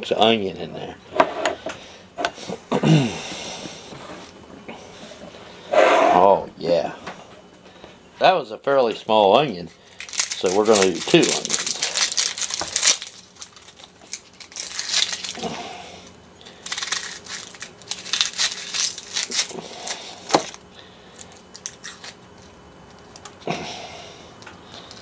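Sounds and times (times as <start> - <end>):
onion skin crackling and tearing: 9.9 - 15.6, 16.5 - 20.6, 21.2 - 23.4.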